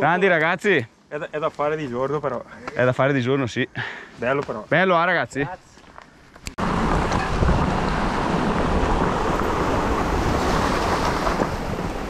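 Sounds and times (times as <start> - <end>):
wind buffeting microphone: 6.4 - 12.0.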